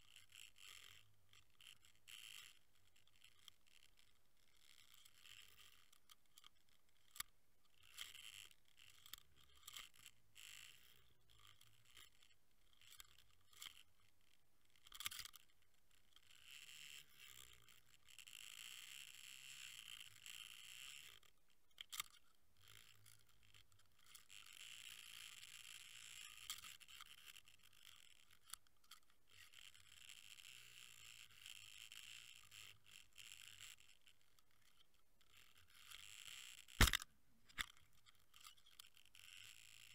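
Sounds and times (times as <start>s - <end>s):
sharp underwater clicks: 36.8s - 37.7s.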